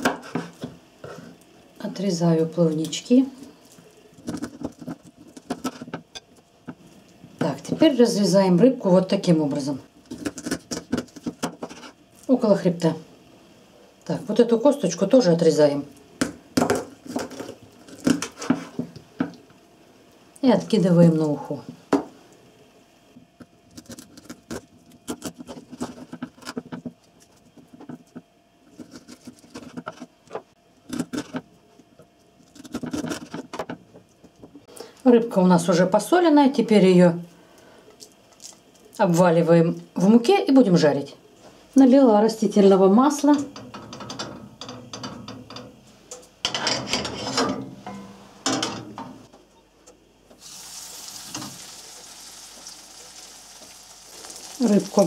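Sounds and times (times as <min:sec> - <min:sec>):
oil sizzling in a frying pan: 0:50.4 - 0:55.0.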